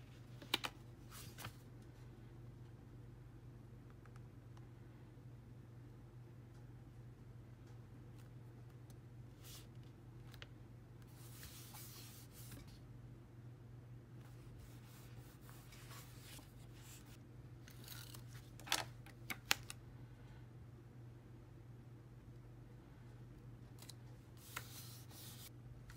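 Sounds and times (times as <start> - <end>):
paper rustling: 0.4 - 1.7.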